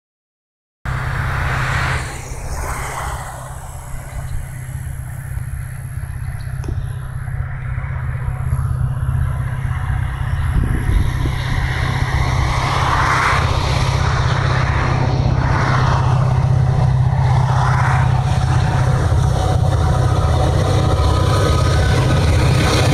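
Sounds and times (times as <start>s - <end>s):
diesel locomotive engines droning: 0.9s - 22.9s.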